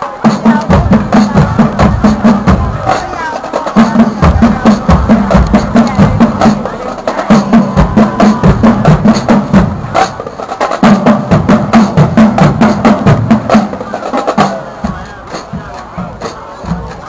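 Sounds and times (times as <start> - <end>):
bass drum notes: 3.9 - 10.1.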